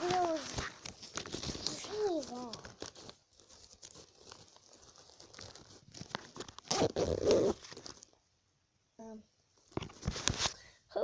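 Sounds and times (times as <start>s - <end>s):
fabric and bag rustling: 0.0s - 8.2s.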